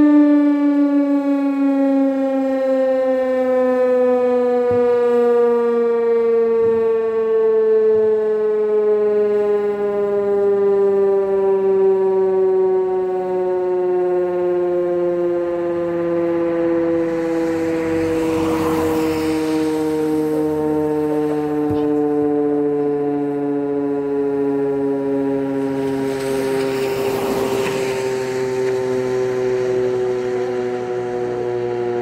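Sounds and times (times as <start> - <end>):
fire station siren winding down: 0.0 - 32.0.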